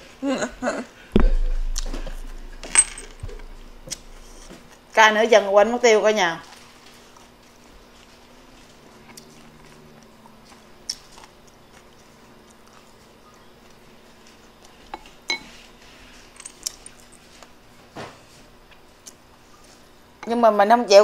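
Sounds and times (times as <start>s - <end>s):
soft chewing: 6.5s - 14.9s.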